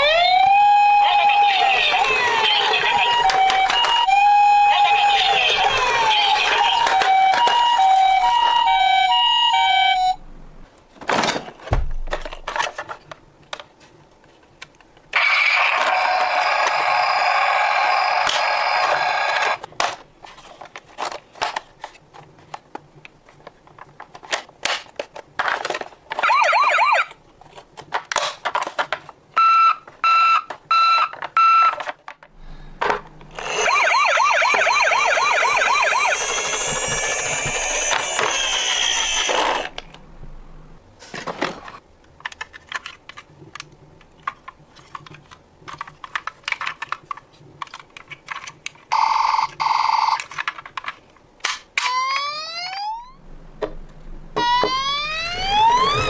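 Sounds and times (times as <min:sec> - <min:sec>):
two-tone toy siren: 0:00.0 - 0:10.2, 0:15.2 - 0:19.6, 0:26.2 - 0:27.1, 0:29.4 - 0:31.8, 0:33.4 - 0:39.6, 0:51.8 - 0:53.2, 0:54.4 - 0:56.0
warbling yelp siren: 0:00.0 - 0:10.2, 0:26.2 - 0:27.1, 0:33.4 - 0:37.8, 0:51.9 - 0:53.2, 0:54.4 - 0:56.0
plastic clicks and rattles: 0:42.1 - 0:48.9, 0:50.2 - 0:51.7.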